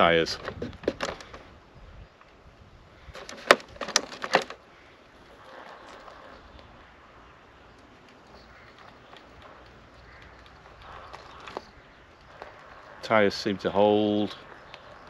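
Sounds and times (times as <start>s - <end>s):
toy car knocking on rock: 0.4s - 1.3s.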